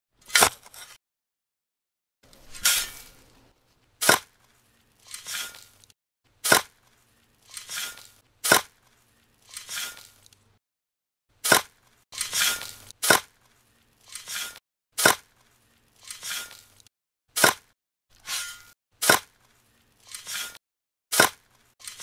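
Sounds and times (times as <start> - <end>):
scoop scraping sand: 2.3 - 3.3, 5.0 - 5.8, 6.4 - 10.2, 11.4 - 13.3, 14.0 - 15.3, 16.0 - 16.7, 18.2 - 19.4, 20.0 - 20.6.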